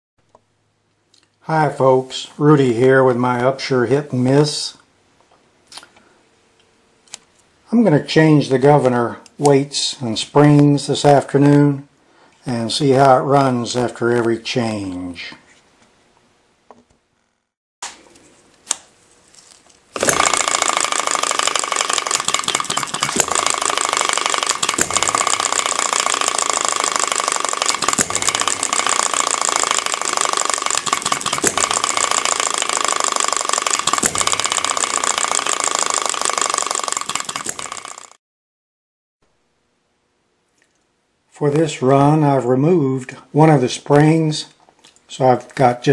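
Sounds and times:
engine mechanical clatter: 20.0s - 38.2s
sharp engine click: 20.0s - 38.2s.

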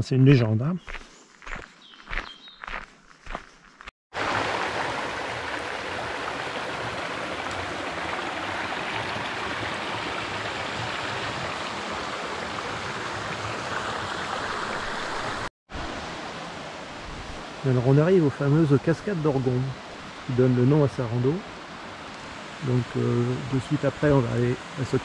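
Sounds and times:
stream flowing over stones: 4.1s - 16.7s.

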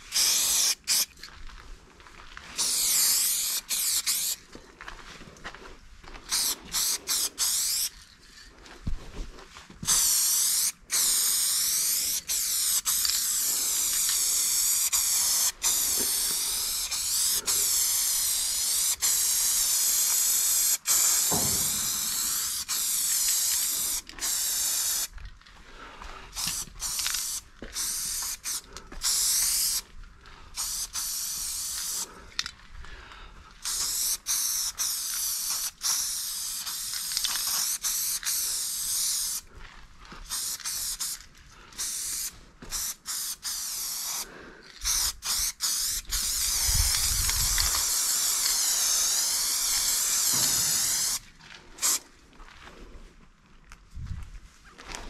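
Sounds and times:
spray-paint can hissing: 0.1s - 1.1s, 2.6s - 4.4s, 6.3s - 7.9s, 9.8s - 25.1s, 26.4s - 29.8s, 30.6s - 32.1s, 33.6s - 39.4s, 40.3s - 41.2s, 41.8s - 51.2s, 51.8s - 52.0s.

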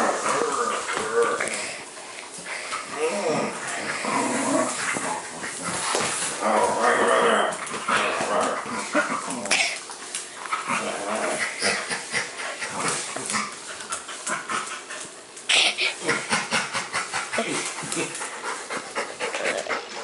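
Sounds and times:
scuffling on tile floor: 0.0s - 15.2s
dog panting and snuffling: 11.3s - 20.0s.

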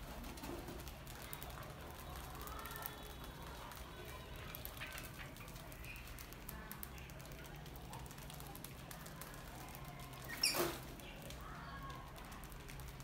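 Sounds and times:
rodents scratching in metal trap: 4.6s - 11.0s.

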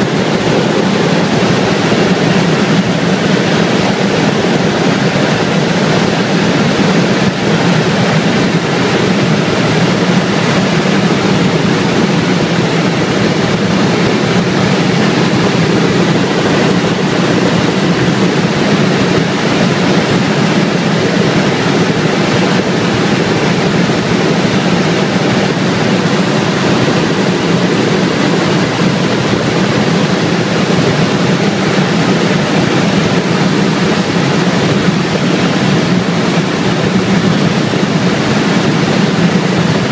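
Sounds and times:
helicopter cabin drone: 0.0s - 39.9s.

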